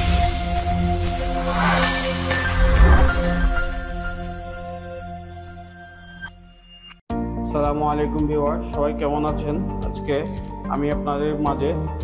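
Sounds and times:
intro music with held tones: 0.0 - 7.0.

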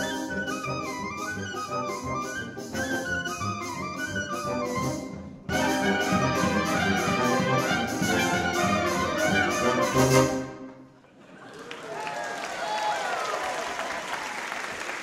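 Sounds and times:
wind band playing fast passage: 0.0 - 10.8
steady percussion beat: 4.6 - 10.4.

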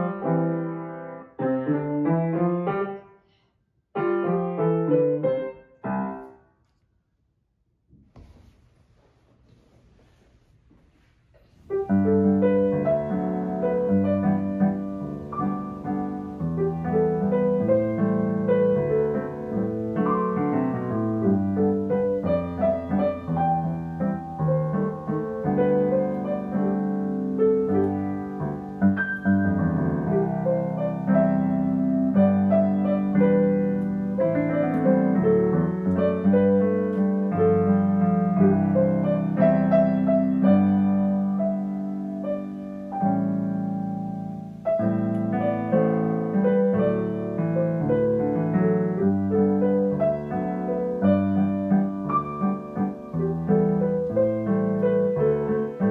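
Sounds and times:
piano duet waltz: 0.0 - 3.2, 4.0 - 6.4, 11.5 - 55.9.

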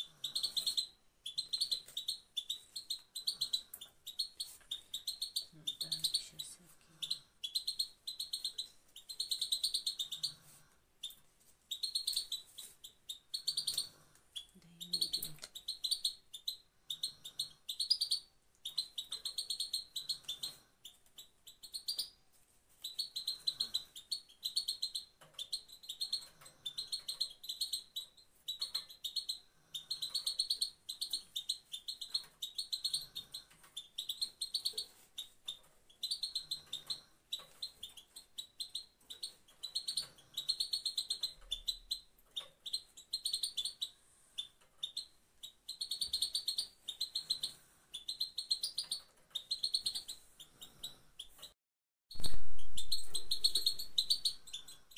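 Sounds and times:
goldfinch chattering call: 52.2 - 54.7.

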